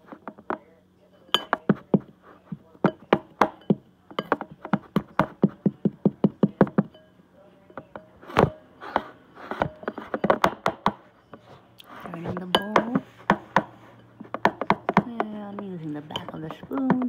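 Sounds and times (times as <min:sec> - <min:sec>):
utensil scraping: 0:07.8 - 0:10.5
kitchen utensil knocking: 0:12.3 - 0:17.0.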